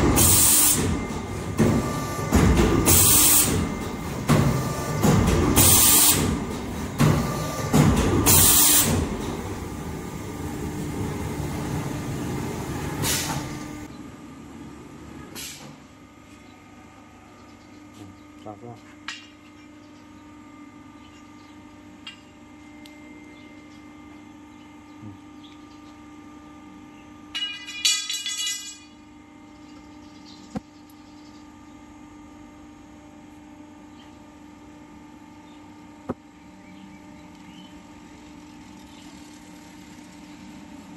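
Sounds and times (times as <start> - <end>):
pump motor humming: 0.0 - 13.9, 36.1 - 40.9.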